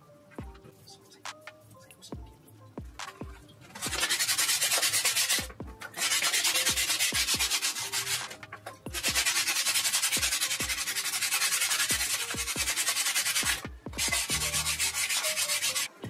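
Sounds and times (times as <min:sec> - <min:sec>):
sandpaper rubbing on cement: 0:03.8 - 0:15.9.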